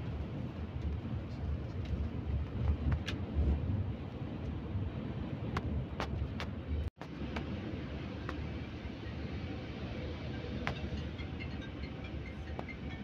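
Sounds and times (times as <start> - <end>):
coach road and engine rumble: 0.0 - 13.0.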